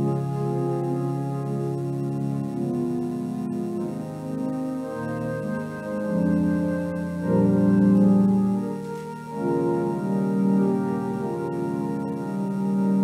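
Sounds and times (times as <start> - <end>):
organ playing sustained chords: 0.0 - 13.0.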